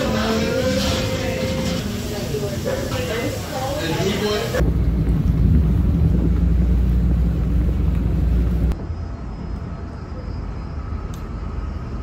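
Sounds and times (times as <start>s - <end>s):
street ambience: 0.0s - 12.0s
low outdoor rumble: 4.5s - 12.0s.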